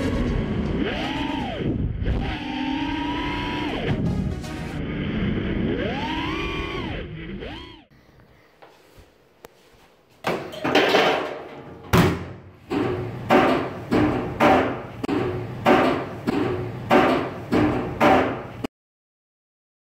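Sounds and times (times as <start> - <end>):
heavy metallic thuds in dryer: 10.3 - 18.6.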